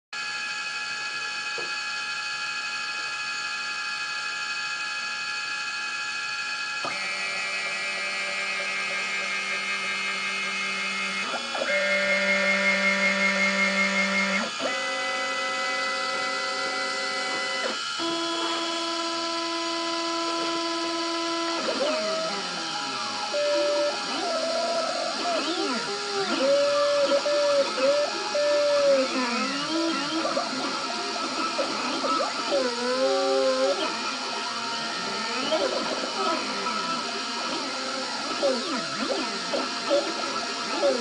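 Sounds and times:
cnc router motors whining: 0.2s - 41.0s.

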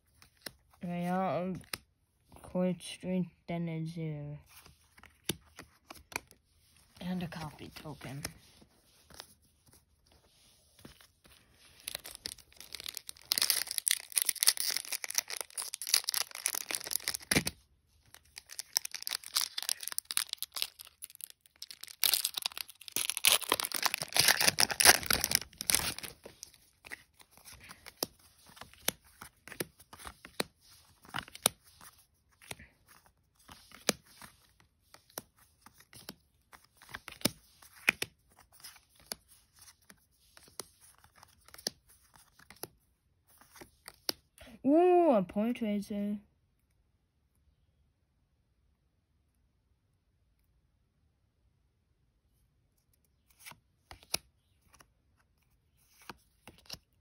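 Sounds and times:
cards clicking and slapping: 10.8s - 42.8s, 53.2s - 54.9s
foil wrapper tearing and crinkling: 11.7s - 29.6s.

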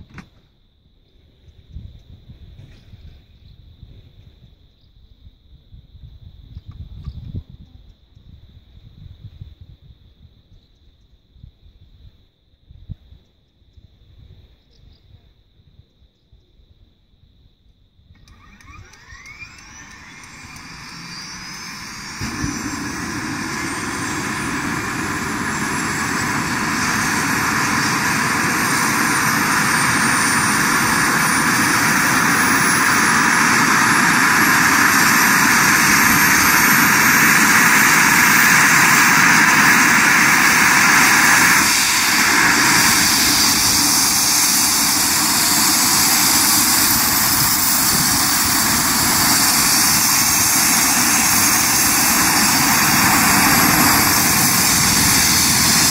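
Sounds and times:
helicopter turbine whine and rotor: 18.2s - 55.9s.

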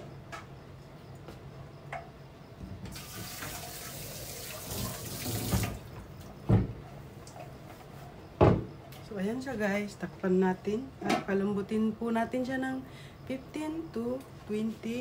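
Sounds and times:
water running from a tap: 2.9s - 5.8s
loud thump: 8.4s - 8.7s.

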